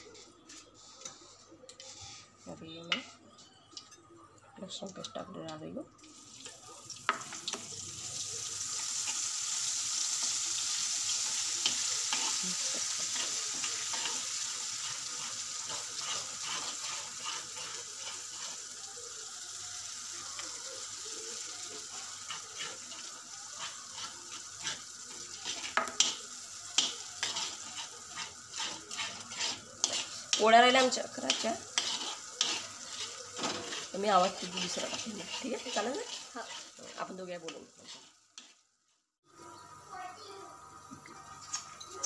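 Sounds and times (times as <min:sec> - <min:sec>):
spoon stirring and scraping pot: 0:00.0 - 0:04.0, 0:08.8 - 0:18.9, 0:20.1 - 0:38.6
garlic paste sizzling in oil: 0:04.7 - 0:42.0.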